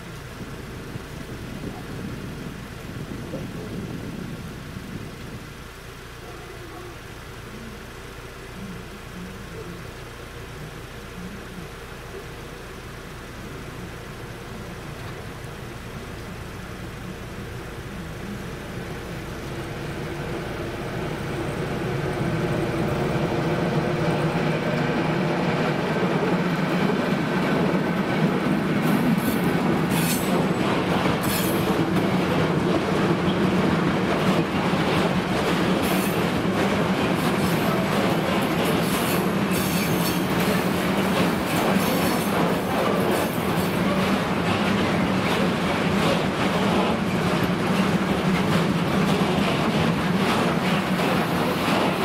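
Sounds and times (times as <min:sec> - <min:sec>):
diesel locomotive engine: 0:00.0 - 0:52.0
train wheel clatter: 0:18.2 - 0:52.0
wheel squeals on rails: 0:38.4 - 0:44.3.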